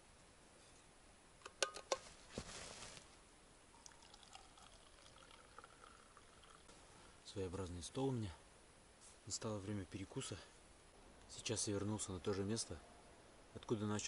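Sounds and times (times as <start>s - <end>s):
liquid pouring into cup: 3.8s - 6.7s.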